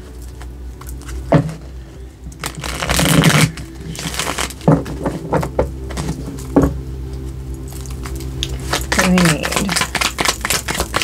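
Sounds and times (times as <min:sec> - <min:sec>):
cards shuffling: 0:02.4 - 0:06.6, 0:07.7 - 0:11.0
cards snapping and tapping: 0:07.9 - 0:11.0.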